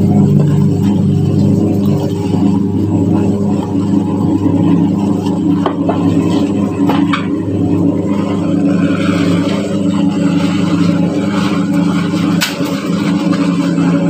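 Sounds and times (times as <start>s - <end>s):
mixer machine humming: 0.0s - 14.0s.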